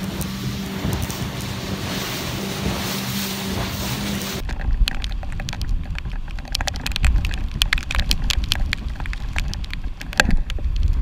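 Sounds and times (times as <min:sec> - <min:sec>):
boat rumble: 0:00.0 - 0:11.0
water droplets ticking on camera: 0:04.4 - 0:11.0.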